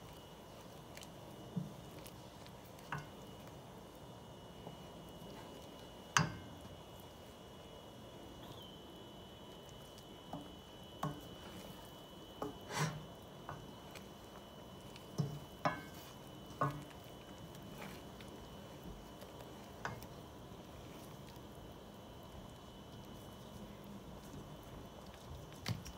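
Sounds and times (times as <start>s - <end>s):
wooden spoon stirring sauce: 0.0s - 25.9s
spoon clacking against pan: 15.1s - 17.0s.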